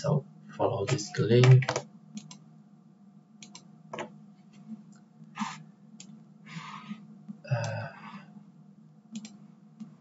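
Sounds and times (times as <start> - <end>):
low steady hum: 0.0 - 10.0
mouse and keyboard clicks: 0.9 - 2.4, 3.4 - 4.1, 9.2 - 9.9.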